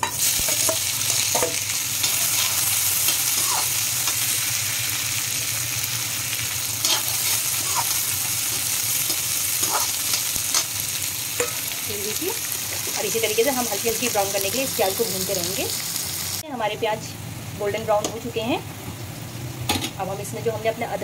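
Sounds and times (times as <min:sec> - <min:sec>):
metal spatula scraping pan: 0:00.0 - 0:04.2, 0:06.8 - 0:10.7
onions sizzling in hot oil: 0:00.0 - 0:21.0.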